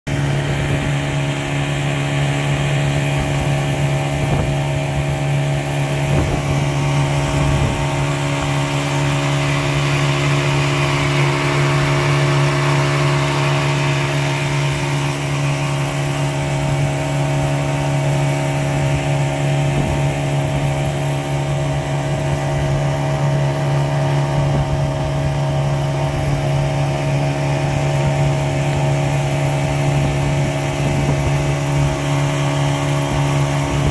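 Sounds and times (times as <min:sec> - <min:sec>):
outboard motor running: 0:00.1 - 0:33.9.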